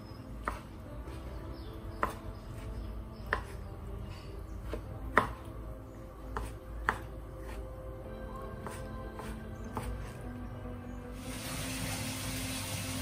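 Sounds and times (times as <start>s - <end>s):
knife chopping on wooden board: 0.4s - 3.7s, 4.6s - 5.5s, 6.2s - 7.7s, 8.6s - 10.2s.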